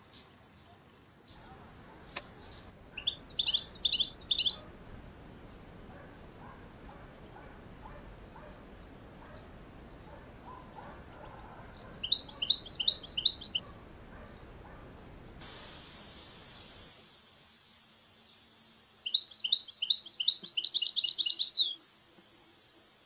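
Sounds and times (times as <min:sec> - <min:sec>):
steady high hiss: 0:00.0 - 0:10.5, 0:15.0 - 0:23.0
goldfinch twittering song: 0:02.5 - 0:04.7, 0:11.7 - 0:13.6, 0:19.0 - 0:21.8.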